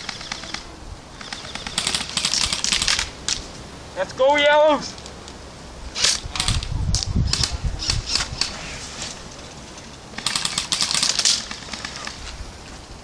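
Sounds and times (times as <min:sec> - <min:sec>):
airsoft rifle firing: 0:00.0 - 0:03.1, 0:10.1 - 0:12.2.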